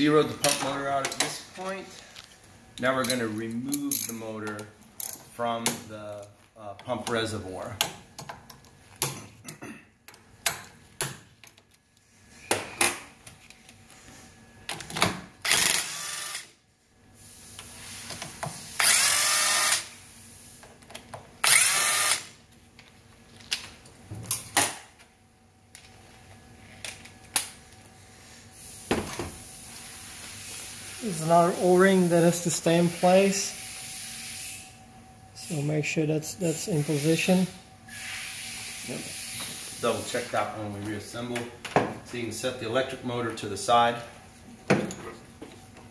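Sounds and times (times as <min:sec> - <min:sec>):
cordless drill spinning: 0:15.4 - 0:16.5, 0:18.8 - 0:19.9, 0:21.4 - 0:22.3.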